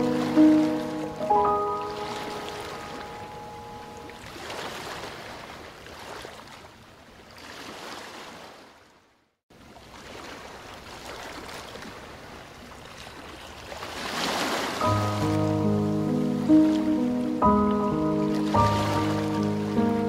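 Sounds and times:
held melody notes: 0.0 - 4.3, 14.8 - 20.0
rushing water: 0.0 - 20.0.

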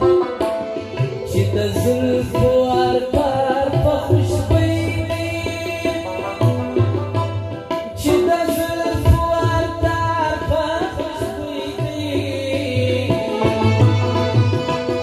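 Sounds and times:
harmonium and keyboard: 0.0 - 15.0
man singing ornamented line: 1.0 - 15.0.

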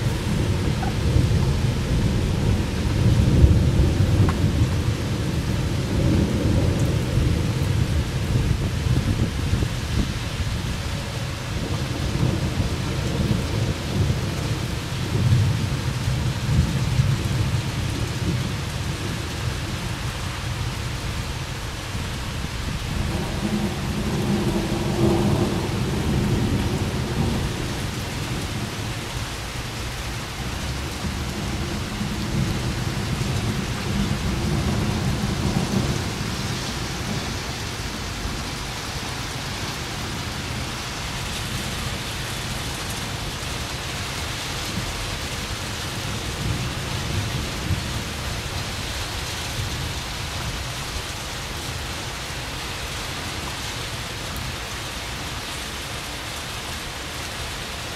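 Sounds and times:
rolling thunder rumbling: 0.0 - 10.8, 21.8 - 48.8
steady rain: 0.0 - 57.9.

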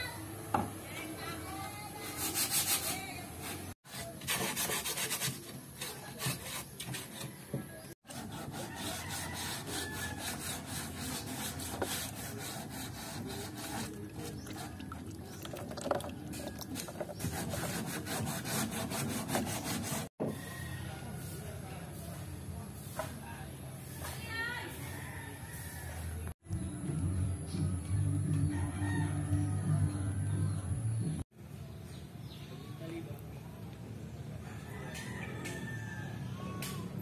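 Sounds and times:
stick stirring paint in plastic: 11.1 - 20.1.

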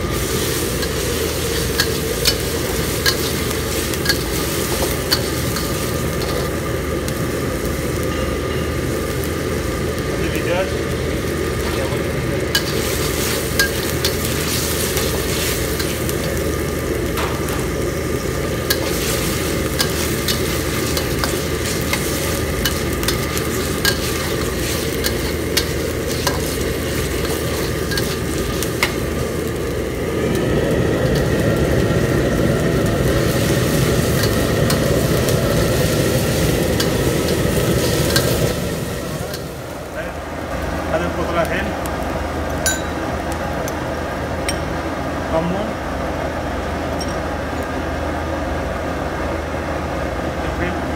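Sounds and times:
chicken frying in oil: 0.0 - 42.6
gas burner rushing: 0.0 - 50.2
metal spatula scraping wok: 0.4 - 6.5, 12.6 - 16.4, 17.2 - 29.1.

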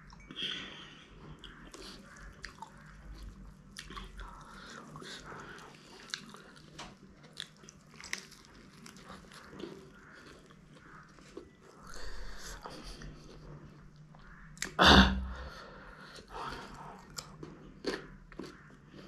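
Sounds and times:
person chewing food: 0.0 - 14.8, 16.0 - 19.0.

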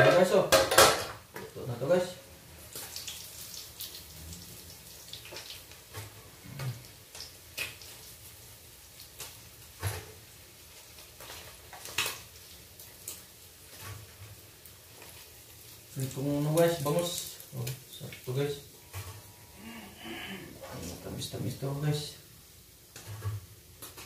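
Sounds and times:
fish frying in oil: 2.5 - 19.3.

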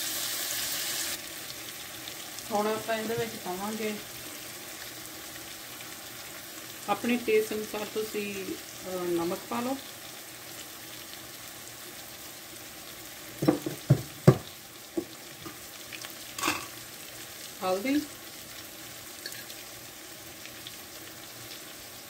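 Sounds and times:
vegetables sizzling in frying pan: 0.0 - 22.0
sharp knocks: 13.4 - 14.5.

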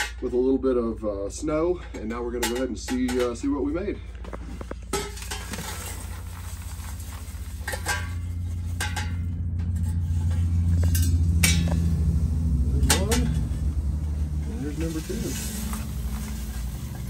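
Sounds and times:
low steady hum: 0.0 - 17.0
biochar clattering into bucket: 4.2 - 17.0.

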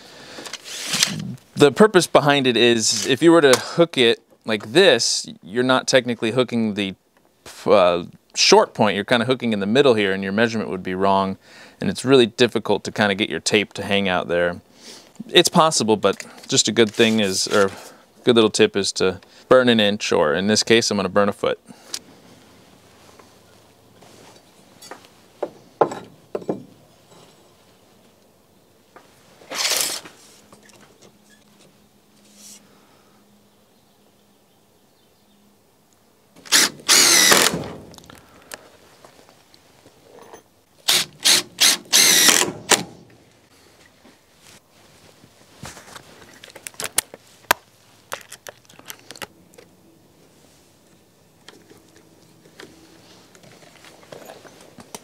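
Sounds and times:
board scraping against wood: 0.6 - 1.3
wooden knocks: 25.4 - 26.7.

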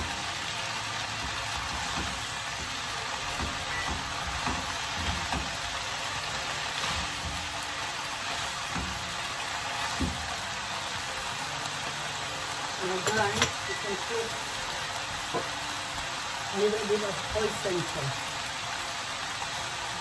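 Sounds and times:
food sizzling in a frying pan: 0.0 - 20.0
utensils knocking against pan: 13.0 - 13.8.

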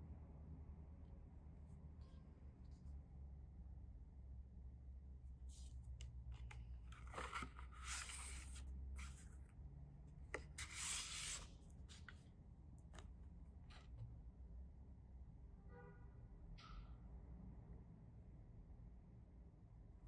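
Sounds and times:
card stock rustling and sliding: 5.4 - 9.4, 10.3 - 12.2.

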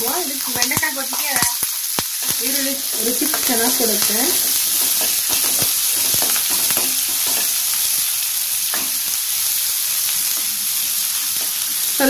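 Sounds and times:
onions sizzling in hot oil: 0.0 - 12.0
spoon knocking pan: 0.6 - 7.8, 8.7 - 9.1.

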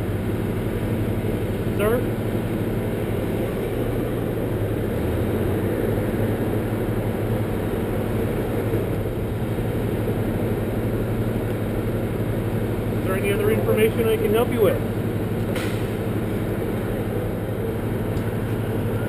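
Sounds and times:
engine idling: 0.0 - 19.0.

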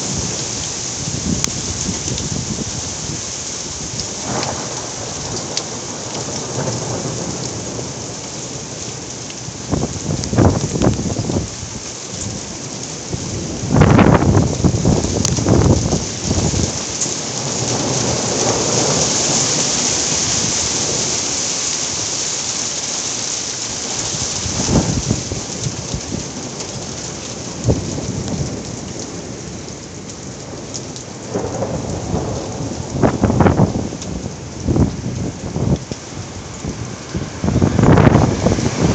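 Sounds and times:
heavy rain pouring: 0.0 - 38.9
thunder claps: 31.3 - 35.9, 36.6 - 38.9.

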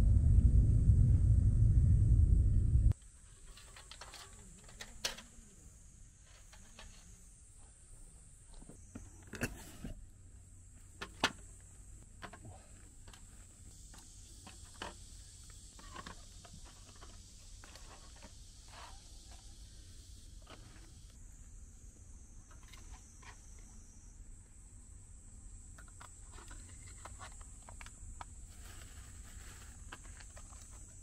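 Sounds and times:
plastic containers clicking and rustling: 3.5 - 5.4.

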